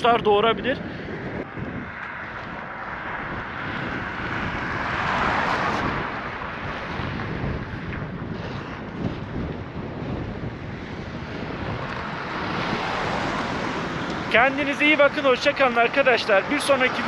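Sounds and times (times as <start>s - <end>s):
wind rushing across microphone: 0.0s - 17.0s.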